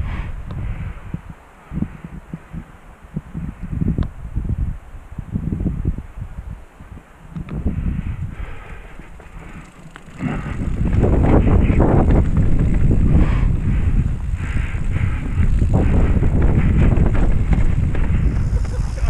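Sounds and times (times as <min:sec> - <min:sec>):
wind buffeting microphone: 0:00.0 - 0:19.0
bike rattling over roots: 0:08.4 - 0:19.0.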